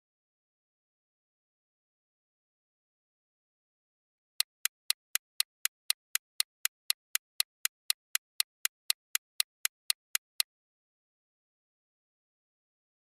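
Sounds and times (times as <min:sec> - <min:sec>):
clock ticking: 0:04.4 - 0:10.5.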